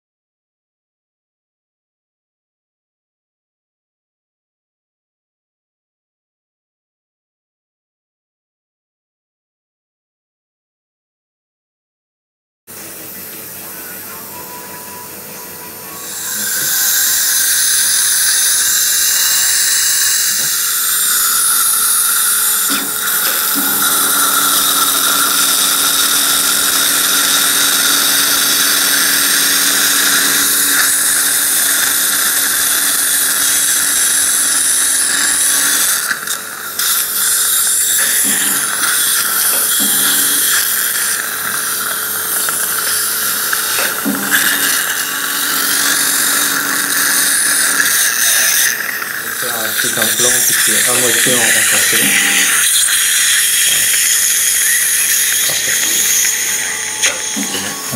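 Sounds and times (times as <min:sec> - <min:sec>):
surgical drill whining: 0:15.9 - 0:57.9.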